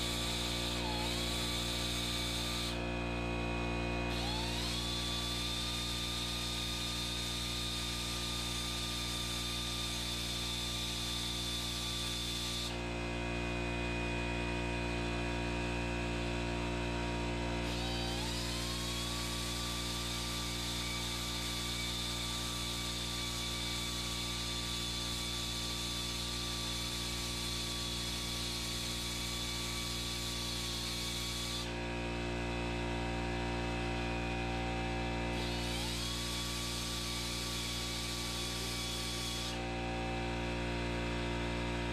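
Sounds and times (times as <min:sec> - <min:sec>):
air compressor humming: 0:00.0 - 0:03.2, 0:33.0 - 0:41.0
die grinder whining: 0:00.0 - 0:15.0, 0:15.7 - 0:41.9.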